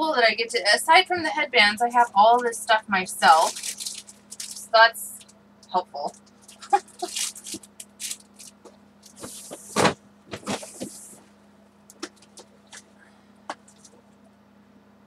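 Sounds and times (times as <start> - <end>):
steady low hum: 0.0 - 15.0
rustling: 3.3 - 5.3, 6.1 - 11.3.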